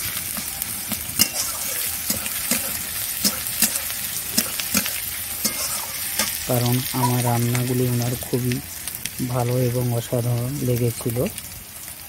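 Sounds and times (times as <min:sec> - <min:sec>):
onions sizzling in oil: 0:00.0 - 0:12.0
metal spatula scraping a pan: 0:01.1 - 0:07.7.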